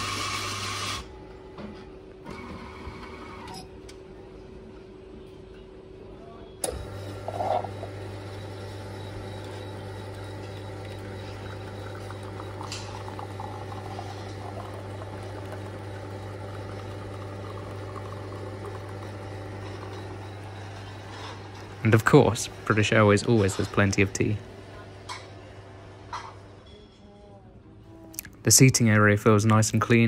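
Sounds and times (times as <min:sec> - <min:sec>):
coffee machine humming: 0:00.0 - 0:04.5, 0:06.6 - 0:26.4
coffee streaming into cup: 0:06.6 - 0:24.1.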